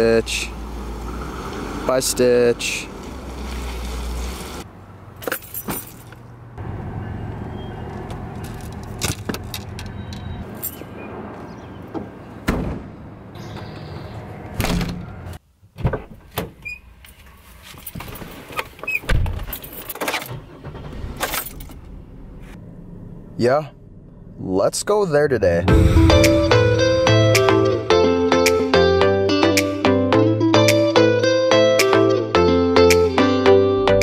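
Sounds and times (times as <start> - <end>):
keys jangling: 5.2 - 6.2
low engine hum: 20.6 - 24.6.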